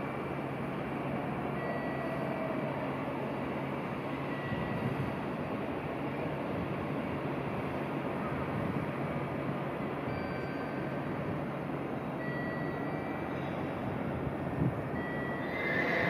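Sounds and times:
faint high whining tones: 0:00.0 - 0:05.4, 0:10.0 - 0:16.0
electric train rolling: 0:08.6 - 0:16.0.

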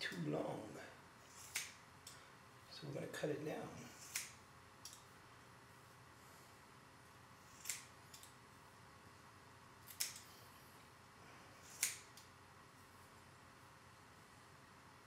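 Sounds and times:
scissors snipping hair: 0:01.3 - 0:02.2, 0:03.9 - 0:05.1, 0:07.5 - 0:08.4, 0:09.8 - 0:10.4, 0:11.6 - 0:12.3.

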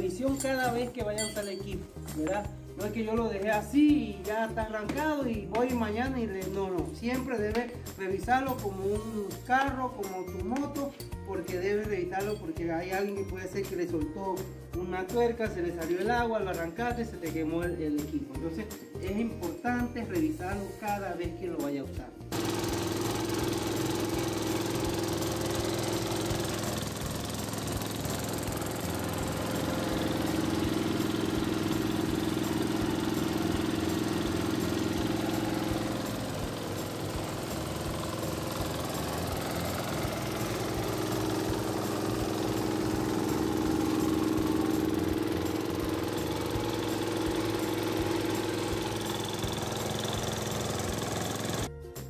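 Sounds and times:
diesel engine droning: 0:23.8 - 0:51.7.

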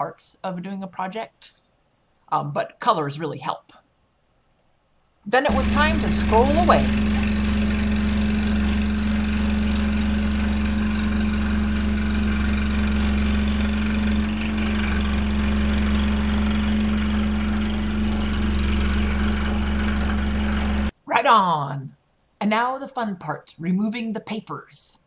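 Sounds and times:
scroll saw motor hum: 0:05.5 - 0:20.9.

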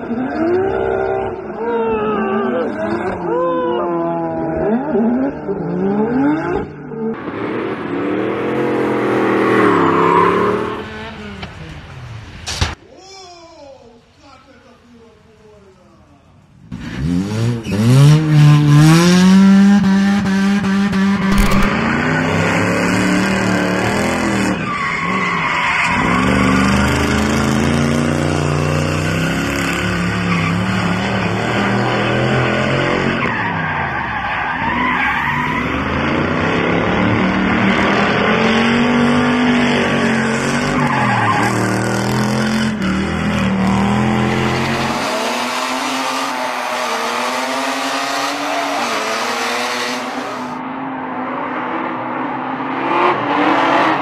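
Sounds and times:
car engines revving: 0:00.0 - 0:12.4, 0:16.7 - 0:54.0
tyres skidding and squealing: 0:00.0 - 0:12.8, 0:20.4 - 0:50.6.

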